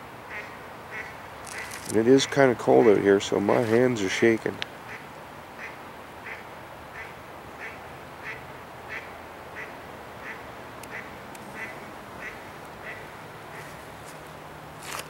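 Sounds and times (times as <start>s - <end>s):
duck quacking: 7.0s - 13.8s.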